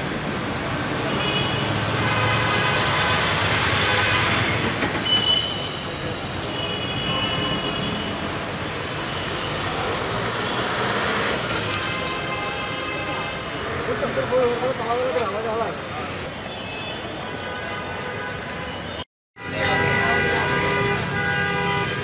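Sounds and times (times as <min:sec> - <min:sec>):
traffic noise: 0:00.0 - 0:22.0.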